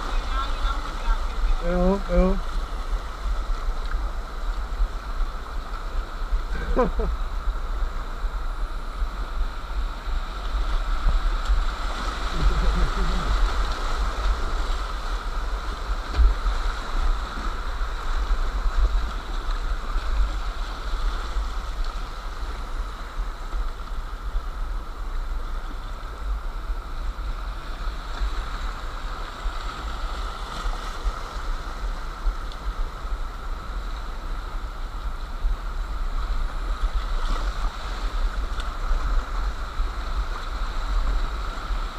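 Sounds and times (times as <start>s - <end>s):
river rapids rushing: 0.0s - 23.4s
low rumble: 6.4s - 16.7s.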